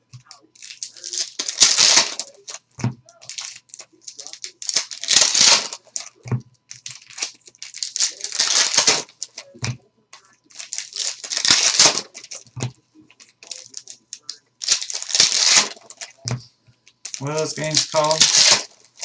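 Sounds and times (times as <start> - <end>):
wrapper rustling: 0.3 - 2.6, 3.2 - 9.5, 10.5 - 12.5, 13.2 - 16.3, 17.0 - 19.0
foil packs tearing: 0.6 - 2.6, 3.2 - 6.2, 6.9 - 9.5, 10.6 - 12.4, 14.6 - 16.2, 17.0 - 19.0.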